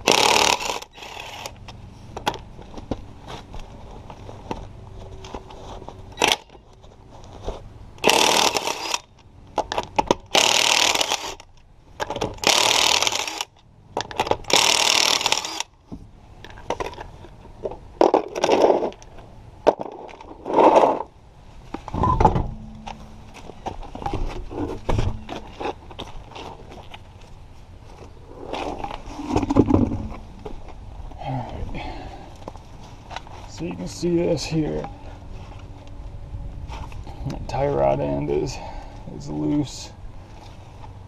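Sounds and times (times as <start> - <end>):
low thump: 22.0 - 23.1, 24.2 - 25.4.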